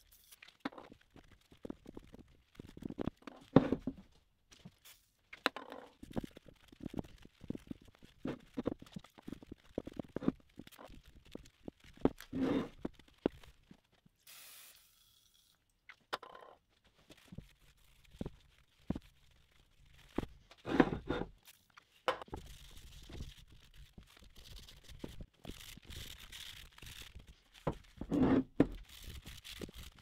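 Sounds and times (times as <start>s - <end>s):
short hiss: 14.2s - 15.4s.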